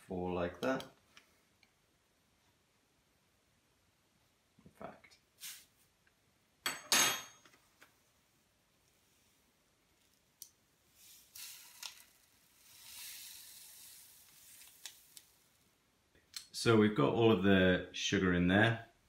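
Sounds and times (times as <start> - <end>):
sugar pouring into bottle: 10.9 - 15.6.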